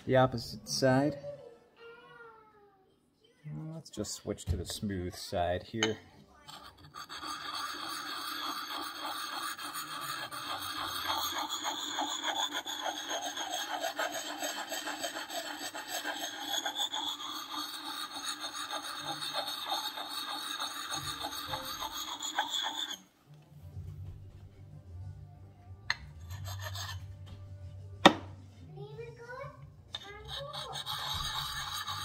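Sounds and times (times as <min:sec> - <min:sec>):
sharpening stone scraping axe edge: 0:05.8 - 0:23.0, 0:25.9 - 0:27.1, 0:29.9 - 0:32.0.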